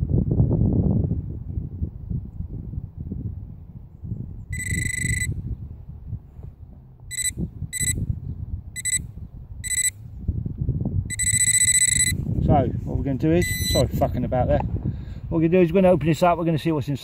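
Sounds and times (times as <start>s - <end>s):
metal detector beeping: 4.6s - 5.4s, 7.1s - 8.0s, 8.8s - 10.0s, 11.1s - 12.2s, 13.4s - 14.0s.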